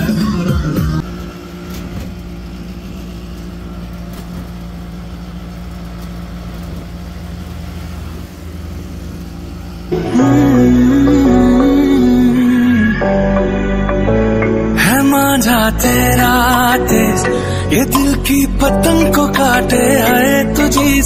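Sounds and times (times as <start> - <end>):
vehicle engine humming: 0.0 - 21.0
song playing: 9.9 - 21.0.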